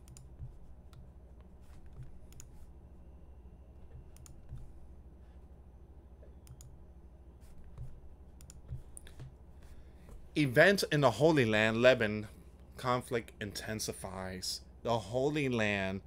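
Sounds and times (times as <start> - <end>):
computer mouse clicks: 0.0 - 2.6, 4.0 - 4.7, 6.4 - 6.8, 7.4 - 9.4
low steady hum: 0.0 - 16.0.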